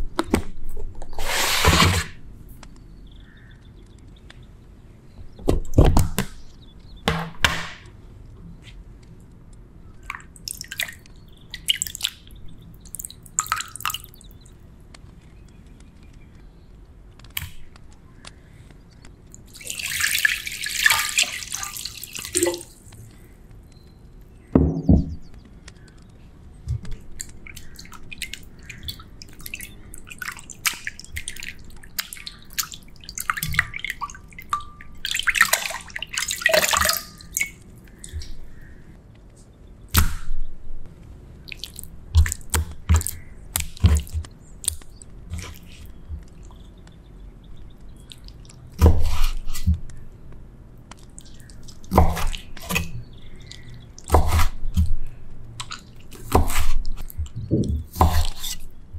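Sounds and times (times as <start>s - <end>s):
water dripping and splashing: 9.9s - 14.6s, 19.3s - 23.2s, 26.8s - 38.7s, 41.4s - 47.0s, 47.6s - 50.0s, 50.9s - 58.6s
water pouring: 19.5s - 23.0s, 27.5s - 38.1s.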